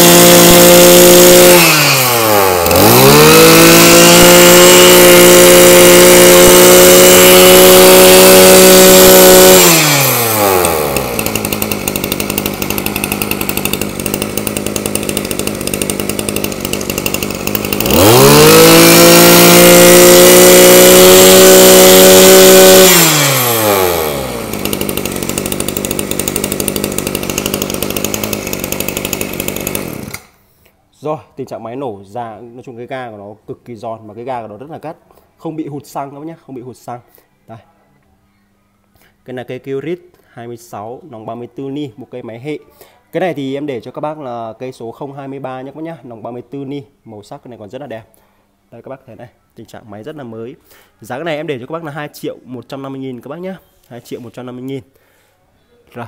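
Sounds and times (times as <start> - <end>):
brush cutter engine revving: 0.0 - 30.4.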